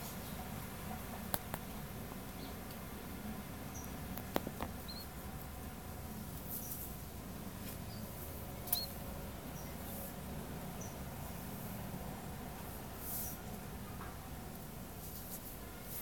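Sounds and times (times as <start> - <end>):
dove peeping: 3.6 - 5.2, 8.7 - 10.1.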